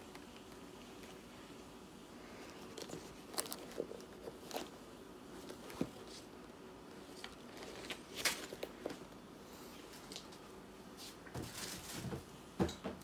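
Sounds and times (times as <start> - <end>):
paper and plastic rustling: 2.4 - 6.3, 7.0 - 9.0, 9.8 - 12.3.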